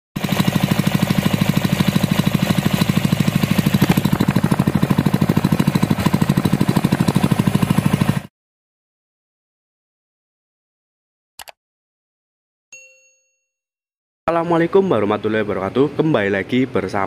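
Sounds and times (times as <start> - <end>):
stationary engine running steadily: 0.2 - 8.3.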